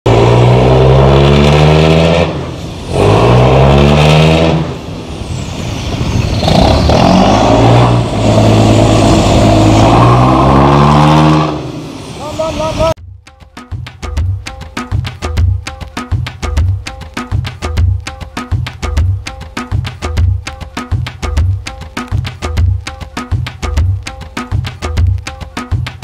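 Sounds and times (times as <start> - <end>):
diesel boat engine revving: 0.1 - 4.9, 6.4 - 12.2.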